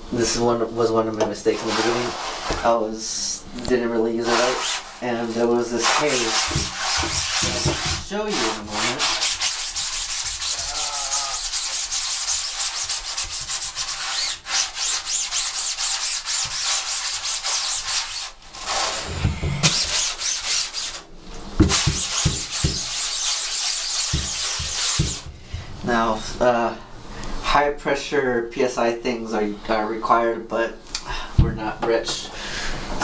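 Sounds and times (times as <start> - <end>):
brush scrubbing mesh: 1.6 - 2.5, 4.2 - 25.3
low thumps: 19.0 - 19.8.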